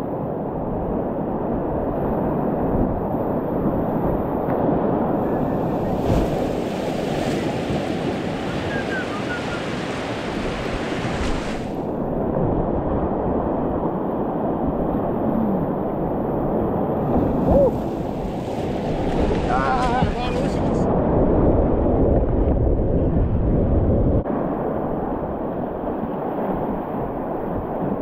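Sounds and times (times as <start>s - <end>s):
wind buffeting microphone: 0.0s - 28.0s
rushing whitewater rapids: 6.4s - 11.7s.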